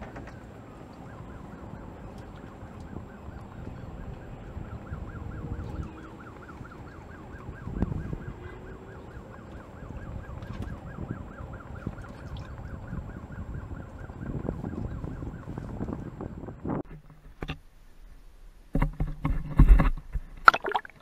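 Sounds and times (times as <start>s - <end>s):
siren yelping: 0.3s - 16.7s.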